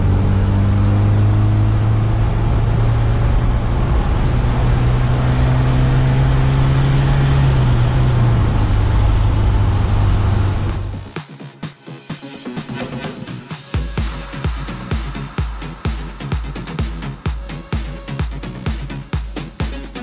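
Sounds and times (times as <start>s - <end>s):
car engine hum: 0.0s - 11.2s.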